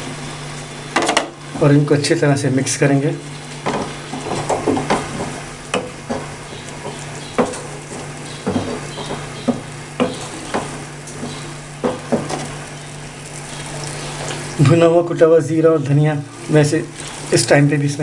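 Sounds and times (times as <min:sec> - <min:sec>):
food sizzling in a frying pan: 0:00.0 - 0:02.0, 0:02.6 - 0:15.1, 0:16.2 - 0:18.0
wooden spoon scraping a pan: 0:03.6 - 0:12.7.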